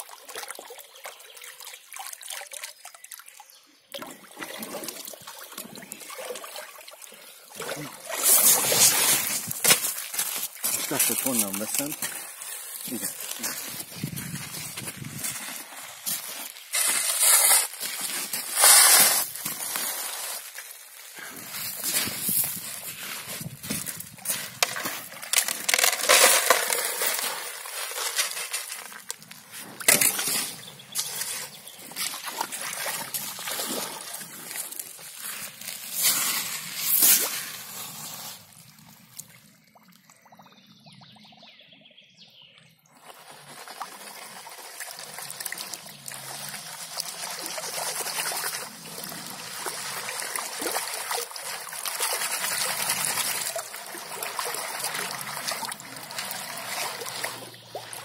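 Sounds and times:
river water sloshing and trickling: 0:00.0 - 0:41.0, 0:42.8 - 0:58.0
gravel shovelled and tipped out: 0:07.7 - 0:38.7
boots stirring gravel: 0:08.2 - 0:38.5.

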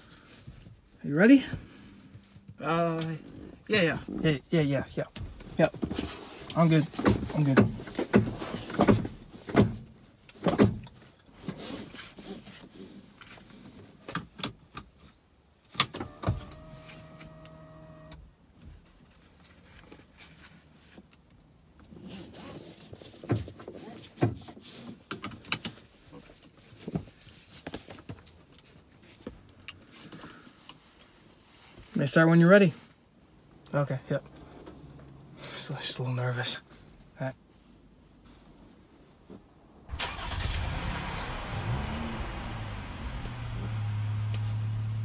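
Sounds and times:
clicks and taps in car cabin: 0:07.0 - 0:11.0.

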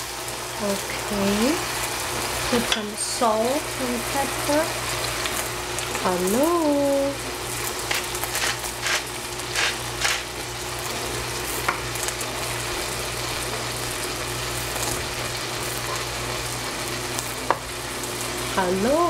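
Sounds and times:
vegetables sizzling in oil: 0:00.0 - 0:19.0
short scratchy strokes: 0:07.9 - 0:10.3.

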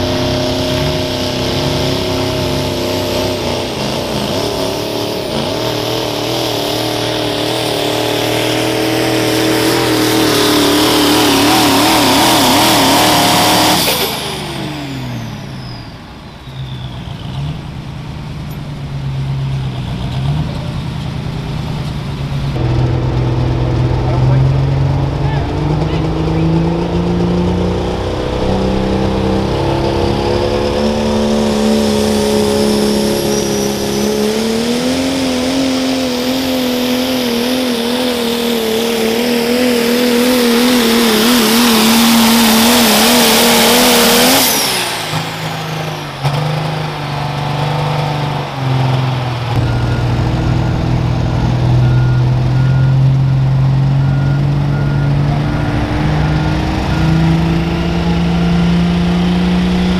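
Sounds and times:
diesel engine idling: 0:00.0 - 0:34.7, 0:44.6 - 0:59.9
diesel truck engine at full power: 0:00.0 - 0:59.9
high whistle: 0:10.3 - 0:17.2, 0:28.3 - 0:34.9, 0:49.6 - 0:58.9.

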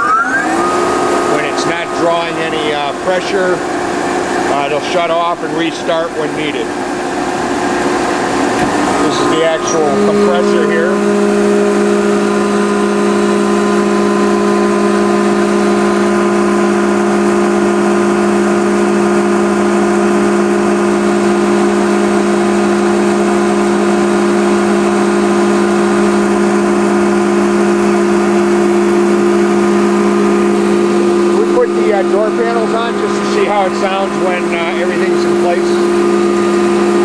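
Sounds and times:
air compressor humming: 0:00.0 - 0:37.0.

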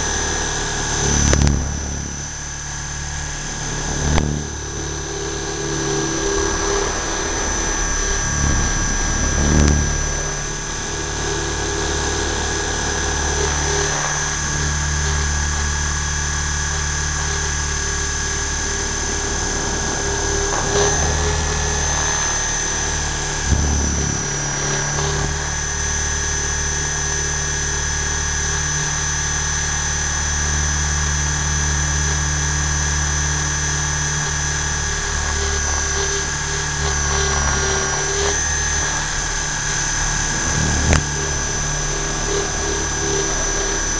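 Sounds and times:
rotor beating: 0:00.0 - 0:28.8, 0:34.2 - 0:43.9
model helicopter whine: 0:00.0 - 0:43.9.

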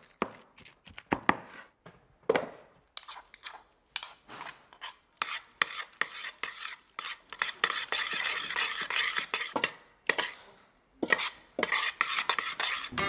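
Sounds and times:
wet pasta mixing: 0:02.9 - 0:13.0.

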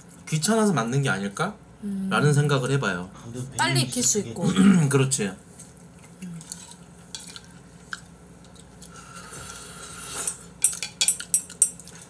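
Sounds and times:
chopsticks clinking against bowls: 0:10.2 - 0:12.0.

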